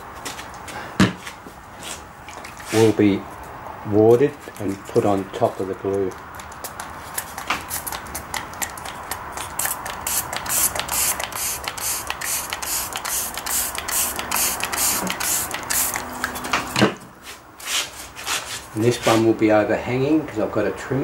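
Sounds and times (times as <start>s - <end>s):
spray bottle squirting: 6.5s - 16.6s.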